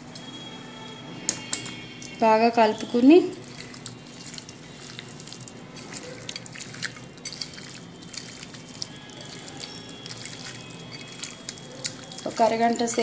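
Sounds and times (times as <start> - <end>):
hand squelching raw chicken: 2.9 - 13.0.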